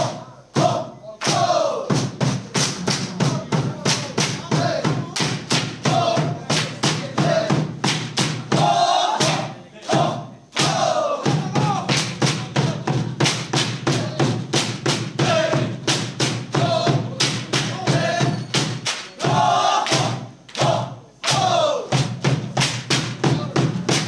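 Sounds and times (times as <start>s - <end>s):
drum beating: 0.0s - 24.0s
group singing or chanting: 0.0s - 24.0s.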